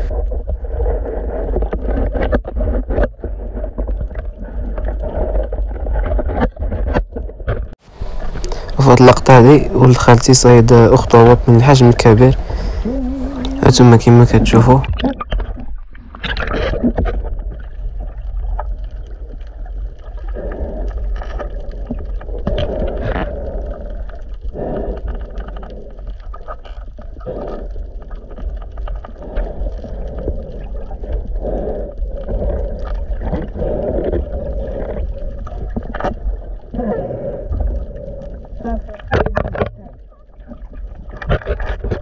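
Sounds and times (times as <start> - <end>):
underwater rumble: 0.0 - 42.0
water sloshing and gurgling: 0.0 - 42.0
small underwater clicks: 14.8 - 42.0.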